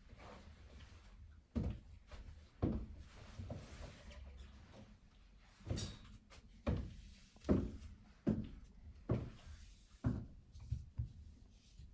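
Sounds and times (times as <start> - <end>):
heavy boots on wooden floor: 1.5 - 3.6, 6.6 - 11.3.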